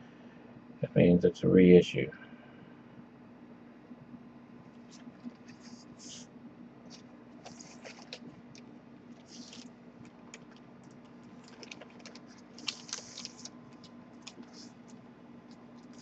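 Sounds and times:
steady low hum: 0:00.0 - 0:16.0
plastic sleeve crinkling: 0:04.8 - 0:06.2, 0:06.8 - 0:16.0.

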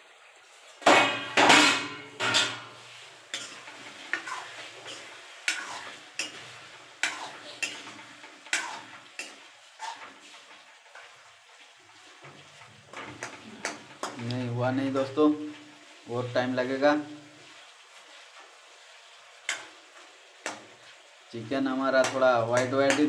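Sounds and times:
metal lid clattering: 0:00.9 - 0:02.7
ladle scraping a metal pan: 0:00.9 - 0:11.2, 0:11.9 - 0:14.3.

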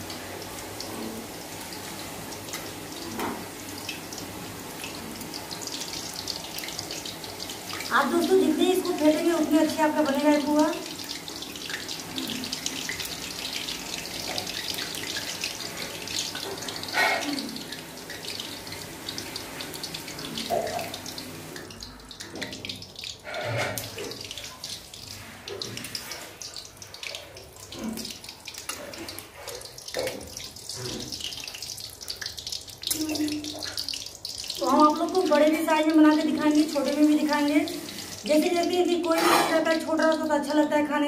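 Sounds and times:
batter sizzling in hot oil: 0:00.0 - 0:40.6.

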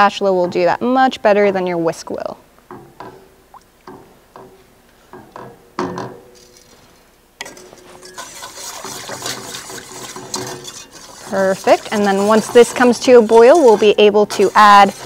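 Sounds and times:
spatula scraping pot: 0:07.4 - 0:15.0
whisk beating liquid in pot: 0:07.5 - 0:15.0.

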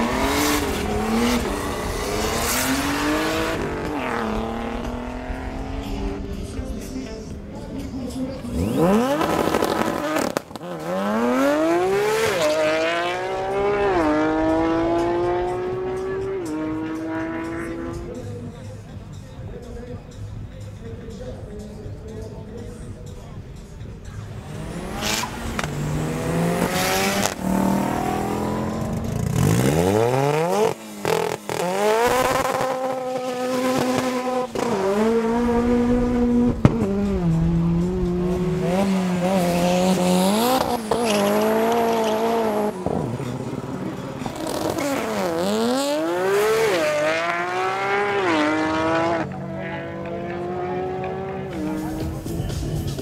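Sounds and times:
race car engine revving: 0:00.0 - 0:06.8, 0:08.4 - 0:18.6, 0:24.0 - 0:53.0.

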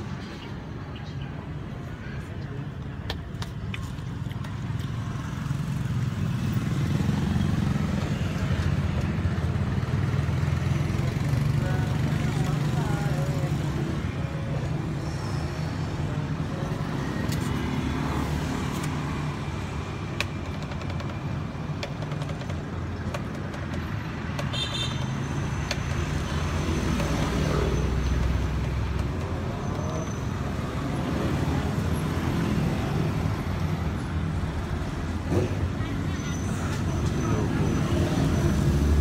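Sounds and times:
traffic engines passing: 0:00.0 - 0:39.0.

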